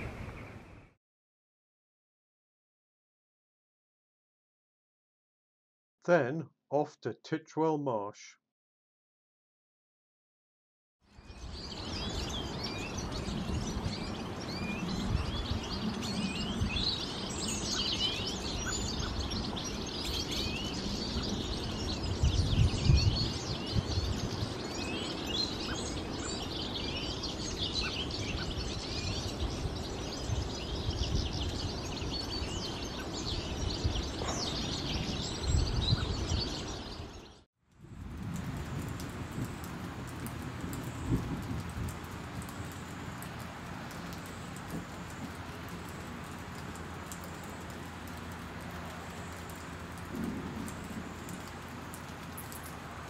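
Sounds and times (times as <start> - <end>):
songbirds chirping: 11.1 - 37.4, 42.3 - 52.9.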